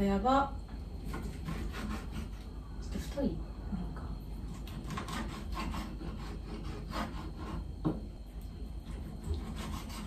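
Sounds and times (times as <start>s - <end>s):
knife sawing through chicken: 1.1s - 2.5s, 4.7s - 7.7s, 8.9s - 10.0s.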